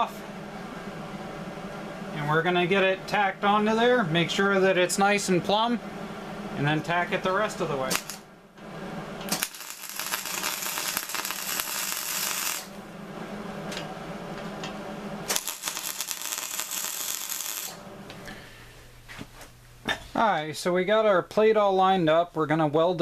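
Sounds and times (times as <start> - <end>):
crackling welder: 6.6 - 12.9, 13.6 - 18.4.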